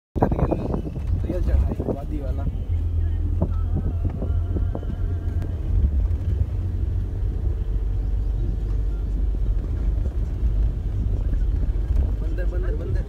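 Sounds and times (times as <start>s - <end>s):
road noise: 0.2s - 13.0s
vehicle engine rumble: 0.2s - 13.0s.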